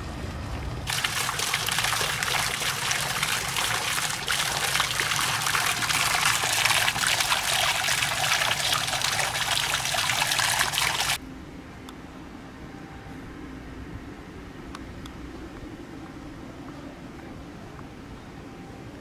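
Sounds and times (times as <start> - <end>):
water pouring into stone basin: 0.9 - 11.2.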